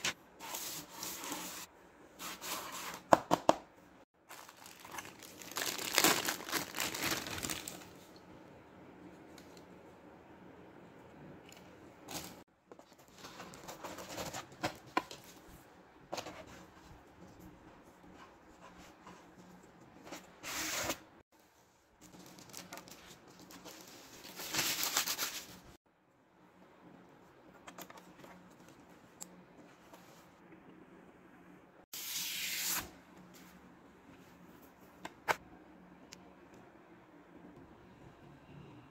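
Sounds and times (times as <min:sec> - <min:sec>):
plastic wrap rustling: 0:04.2 - 0:08.1, 0:22.0 - 0:25.8.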